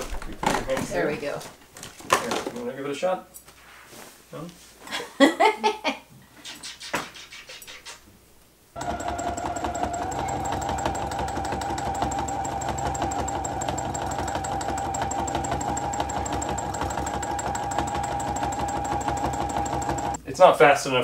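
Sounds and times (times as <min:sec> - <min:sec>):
sewing machine running: 0:08.8 - 0:20.2.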